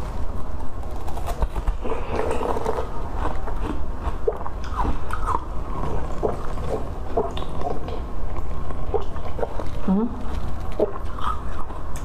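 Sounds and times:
wet sucking and slurping: 0:04.1 - 0:08.0.

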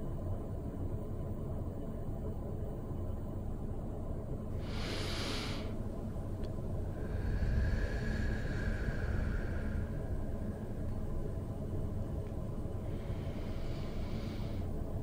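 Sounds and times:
low outdoor rumble: 0:00.0 - 0:15.0
burst of hiss: 0:04.6 - 0:05.7.

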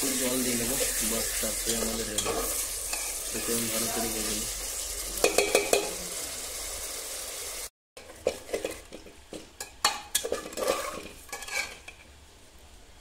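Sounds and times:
curry sizzling: 0:00.0 - 0:12.2
metal spatula scraping pot: 0:00.7 - 0:04.1, 0:08.0 - 0:09.0, 0:09.6 - 0:12.1.

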